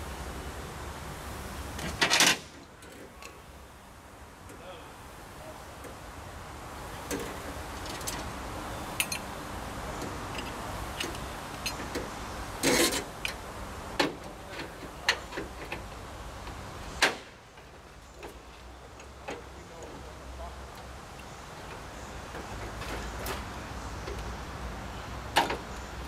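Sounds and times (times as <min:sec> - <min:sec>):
metal tool clicks and clinks: 0:09.0 - 0:09.3.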